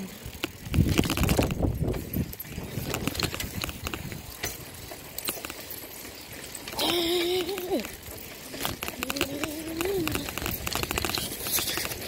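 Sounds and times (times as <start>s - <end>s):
bicycle rolling over tarmac: 0.0s - 12.0s
bike rattling and clicking: 0.0s - 12.0s
wind buffeting microphone: 0.1s - 5.1s, 7.4s - 12.0s.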